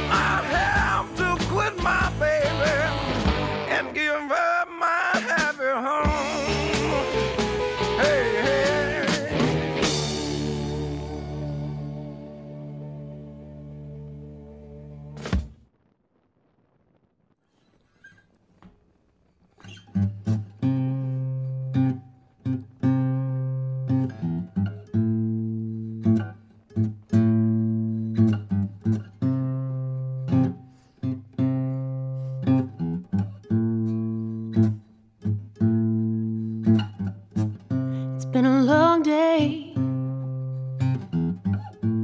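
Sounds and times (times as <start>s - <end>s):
acoustic guitar strumming chords: 0.0s - 4.3s, 5.1s - 15.2s, 19.8s - 42.0s
person singing: 0.0s - 10.0s, 38.0s - 40.1s.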